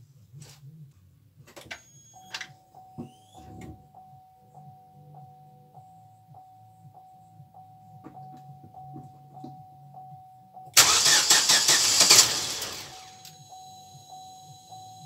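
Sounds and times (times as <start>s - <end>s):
engine starting with loud burst: 10.8s - 13.2s
engine cranking by starter: 10.8s - 13.3s.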